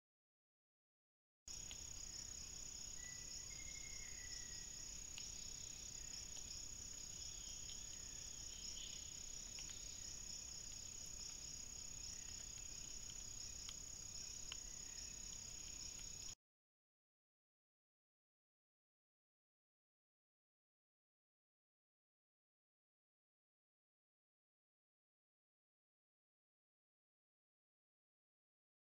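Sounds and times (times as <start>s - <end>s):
fast pulsing insect trill: 1.5s - 16.4s
rainforest insects chorus: 1.5s - 16.4s
soft ticks: 1.6s - 1.8s, 5.1s - 5.4s, 8.8s - 9.9s, 12.3s - 16.4s.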